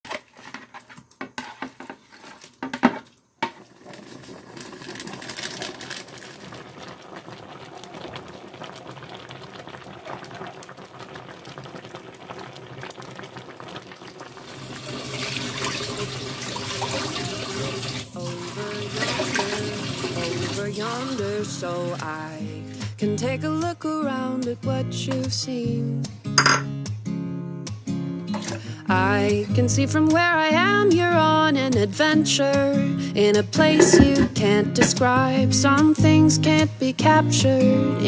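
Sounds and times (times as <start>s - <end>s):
water pouring into a pan: 3.6s - 23.0s, 33.6s - 35.3s
song playing: 33.6s - 35.4s.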